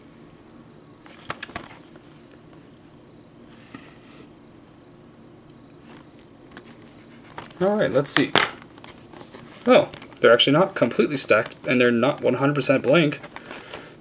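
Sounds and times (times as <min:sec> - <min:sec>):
low room hum: 0:00.0 - 0:14.0
plastic rubbing: 0:05.9 - 0:13.9.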